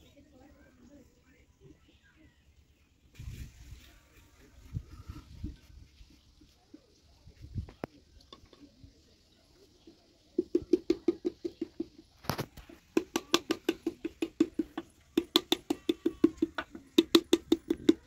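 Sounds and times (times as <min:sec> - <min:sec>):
wooden paddle knocking clay pot: 0:10.4 - 0:18.0.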